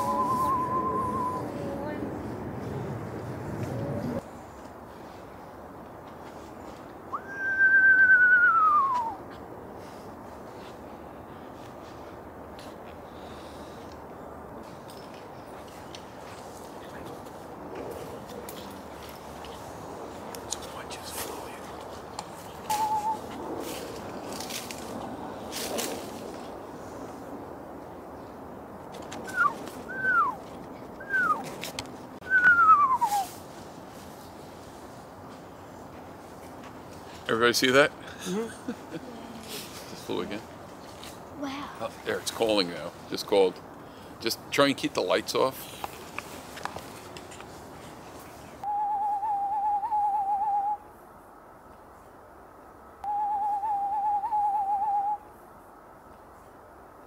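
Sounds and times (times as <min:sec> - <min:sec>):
owl whistling call: 0:00.0 - 0:01.7, 0:07.1 - 0:09.2, 0:22.7 - 0:23.3, 0:29.2 - 0:30.4, 0:31.0 - 0:31.4, 0:32.2 - 0:33.4, 0:48.6 - 0:50.8, 0:53.0 - 0:55.3
owl trilling: 0:53.0 - 0:55.2.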